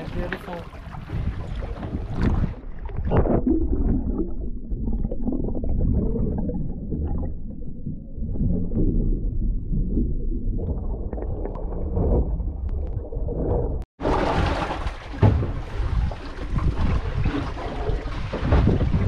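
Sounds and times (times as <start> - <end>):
muffled underwater gurgling: 0.0 - 13.8.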